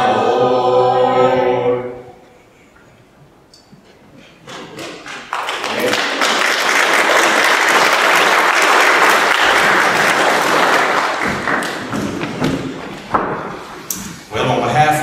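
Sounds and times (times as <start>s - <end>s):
congregation applauding: 4.5s - 12.4s.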